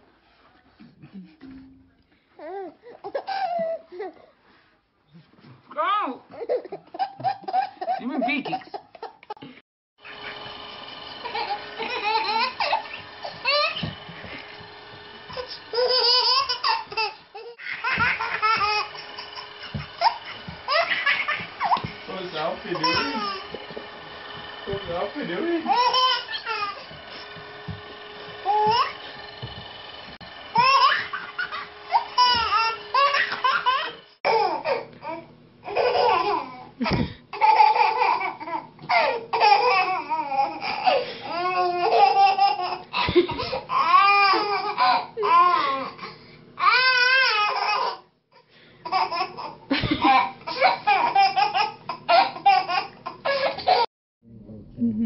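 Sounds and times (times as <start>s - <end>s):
babies laughing and squealing: 15.4s - 23.6s, 25.7s - 27.0s, 30.6s - 34.9s.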